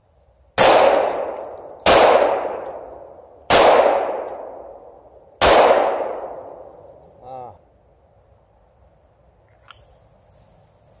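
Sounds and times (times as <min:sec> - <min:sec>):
pistol shots with echo: 0:00.6 - 0:02.9, 0:03.5 - 0:06.7.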